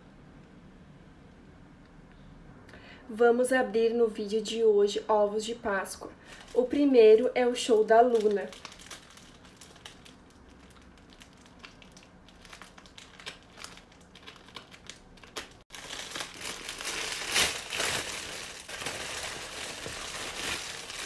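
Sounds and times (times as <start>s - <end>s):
plastic wrapper crinkling: 6.3s - 6.9s, 7.5s - 21.0s.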